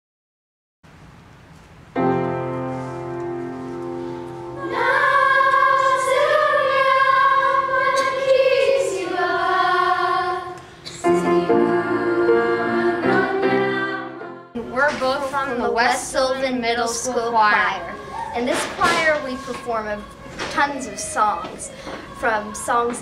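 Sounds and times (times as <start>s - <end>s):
piano accompaniment: 1.9s - 23.0s
choir singing sustained notes: 3.9s - 14.7s, 19.1s - 23.0s.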